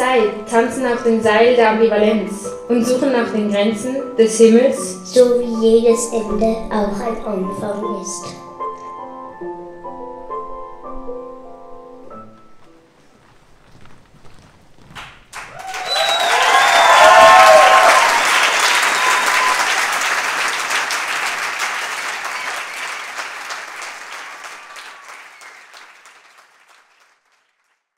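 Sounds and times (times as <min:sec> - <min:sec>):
audience applauding: 0:14.9 - 0:27.9
cheers and whoops: 0:15.4 - 0:20.1.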